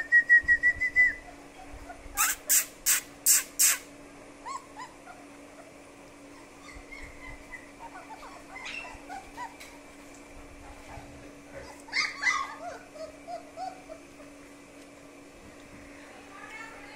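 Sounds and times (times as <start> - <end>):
puppies whimpering and yipping: 1.2 - 3.8, 4.4 - 14.6.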